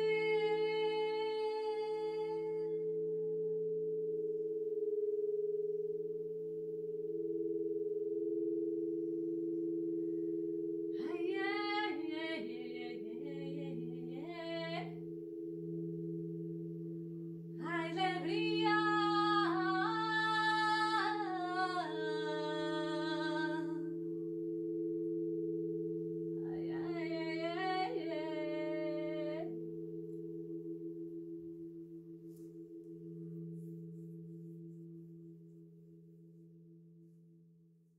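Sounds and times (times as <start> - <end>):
woman singing wordless phrases: 0.0 - 2.8, 11.0 - 15.0, 17.6 - 23.8, 26.4 - 29.5
crystal singing bowls drone: 0.0 - 37.6.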